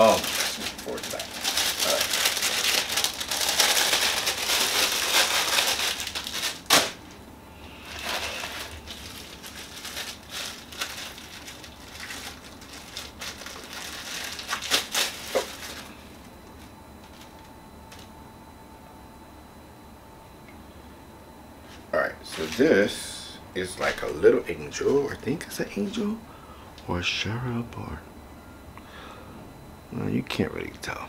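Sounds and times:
plastic cracking: 0.0 - 7.1, 8.0 - 15.9
plastic bag crinkling: 0.0 - 7.2, 7.8 - 18.0, 22.3 - 22.8.

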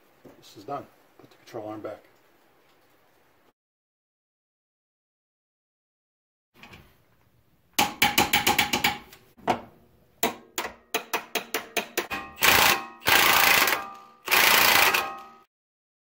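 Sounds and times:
impact wrench hammering: 7.8 - 9.2, 10.2 - 15.4
hand ratchet clicking: 11.0 - 15.3.

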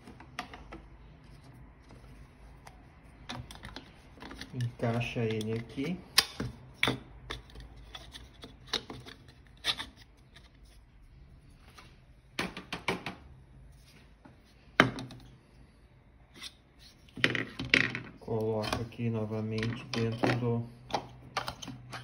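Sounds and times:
hard plastic parts clicking and knocking: 0.0 - 9.9, 12.4 - 13.2, 14.8 - 15.2, 17.2 - 22.0.

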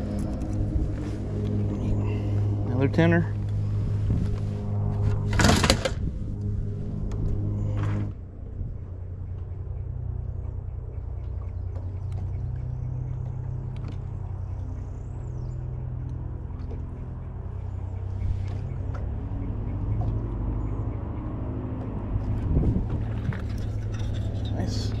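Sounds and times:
boat motor droning: 0.0 - 25.0.

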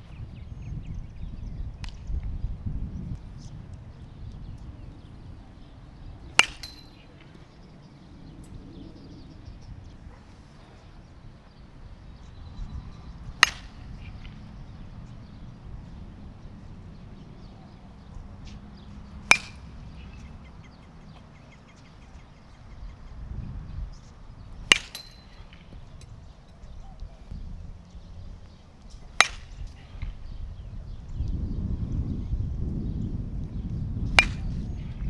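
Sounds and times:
metal bat hitting ball: 6.3 - 7.3, 13.3 - 14.4, 19.1 - 20.2, 24.6 - 25.7, 29.1 - 30.2, 34.1 - 34.8.

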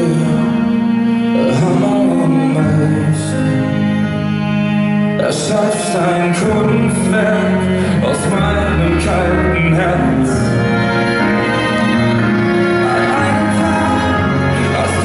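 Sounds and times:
man singing pop song: 0.0 - 0.6, 1.3 - 3.6, 5.2 - 10.6, 12.8 - 15.0
instrumental accompaniment chords: 0.0 - 15.0.

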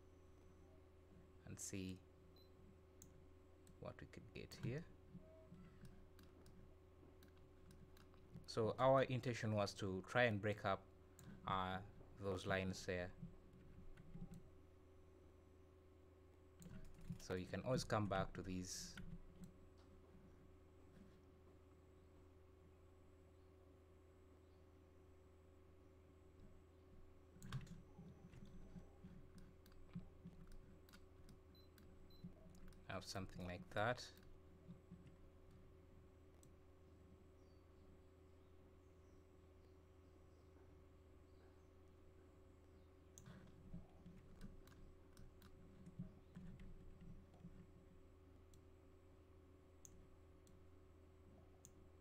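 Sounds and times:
low steady hum: 0.0 - 52.0
computer mouse clicks: 5.6 - 6.6, 13.9 - 14.5, 16.6 - 17.2, 27.4 - 33.6, 43.1 - 47.7, 49.8 - 50.6
faint mouse clicks: 27.4 - 35.6, 49.8 - 50.6, 51.6 - 51.8.

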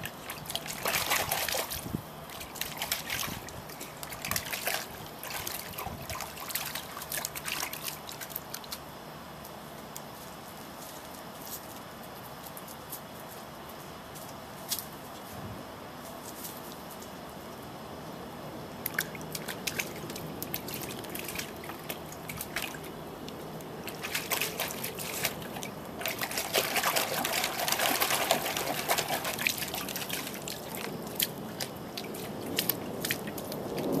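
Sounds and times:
dog splashing in water: 0.0 - 8.8, 18.8 - 23.0, 23.8 - 34.0
water running from hose: 23.8 - 33.9.

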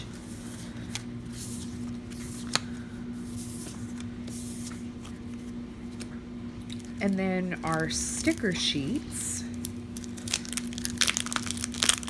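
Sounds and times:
paper cards rustling and sliding: 0.0 - 6.1
steady low hum: 0.0 - 12.0.

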